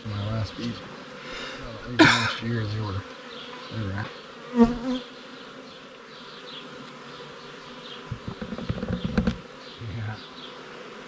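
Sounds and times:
bees zipping past: 0.0 - 11.0
honeybees buzzing: 0.0 - 11.0
hive tool knocking and scraping: 8.0 - 9.6.

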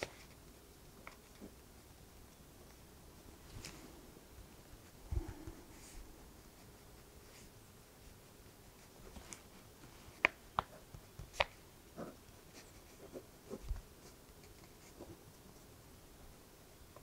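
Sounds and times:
pen scratching on paper: 10.7 - 15.2.

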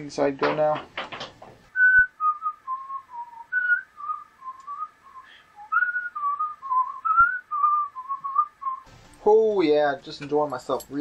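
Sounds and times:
person whistling a tune: 1.8 - 8.9.

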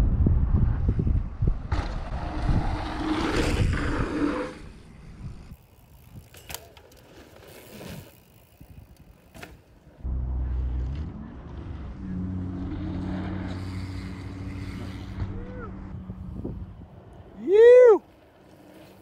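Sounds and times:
wind buffeting microphone: 0.0 - 6.4, 15.1 - 17.4
bike tyres rolling on dirt: 0.6 - 19.0
bike clicks and knocks: 5.5 - 9.9.

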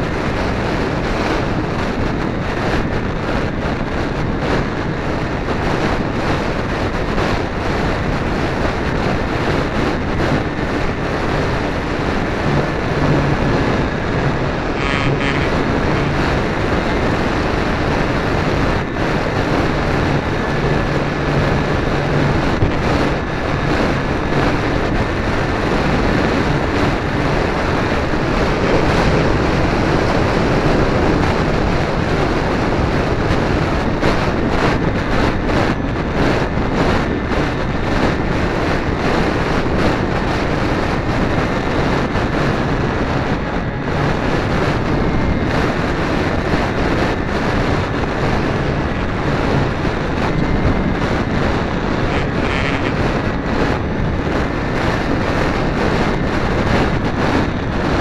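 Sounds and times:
wind rushing over microphone: 0.0 - 58.0
electric motor whine: 10.1 - 31.3, 49.4 - 53.3.

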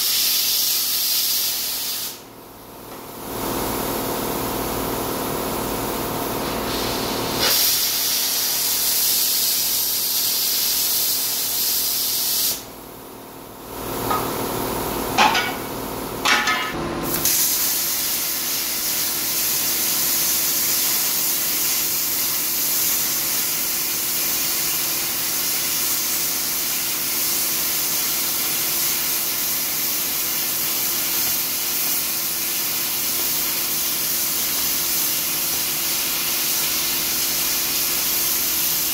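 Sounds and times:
plasma cutter hissing: 0.0 - 2.3, 6.4 - 12.8, 17.1 - 38.9.

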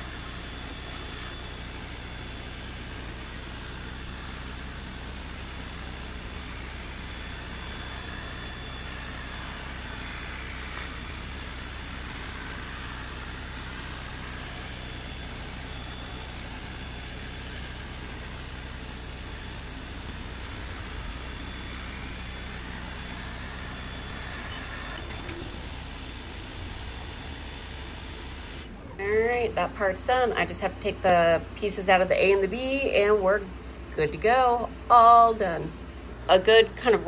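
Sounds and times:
laser head whine: 0.0 - 29.0
air assist and fans humming: 0.0 - 37.0.

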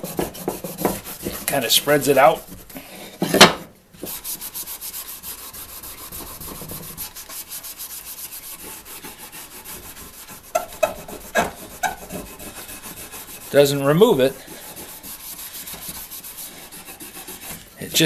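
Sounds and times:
pad scrubbing wooden handle: 0.0 - 2.7, 4.0 - 18.0
short scrapes: 4.0 - 18.0.

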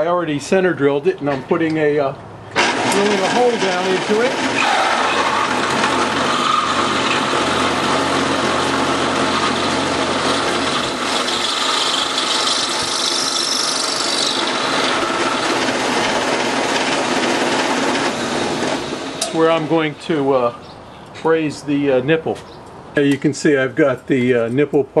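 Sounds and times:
drill boring into metal: 2.6 - 19.7
cutting hiss: 11.0 - 15.4.

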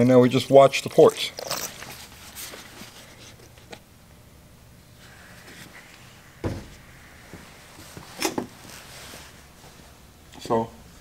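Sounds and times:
dull thump: 6.4 - 7.5.

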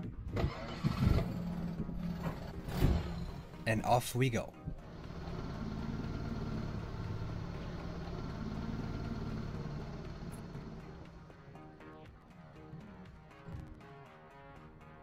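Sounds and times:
outboard motor running: 0.4 - 3.6, 4.7 - 11.8.

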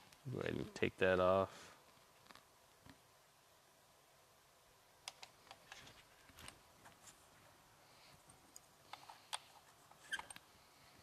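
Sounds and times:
small clicks and taps: 5.0 - 6.6.

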